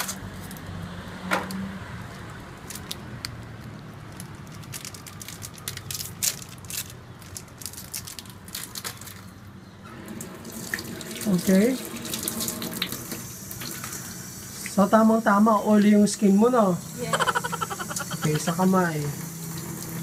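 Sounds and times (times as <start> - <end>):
cardboard box and wrapper crackling: 2.6 - 9.3.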